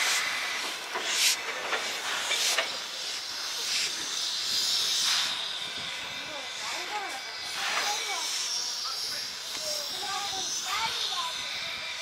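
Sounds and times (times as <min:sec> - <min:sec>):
steam locomotive hissing steam: 0:00.0 - 0:12.0.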